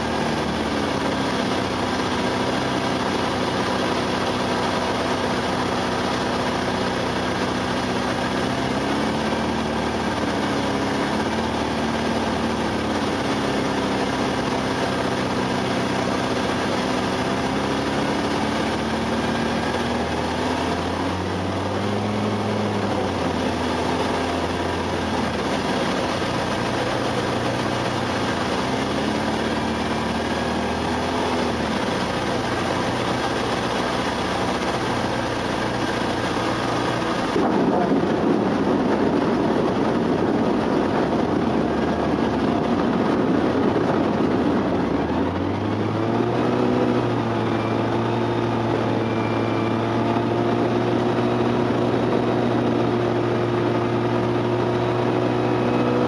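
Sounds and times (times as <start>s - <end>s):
aircraft engine and propeller: 0.0s - 56.0s
wind rushing: 37.2s - 45.7s.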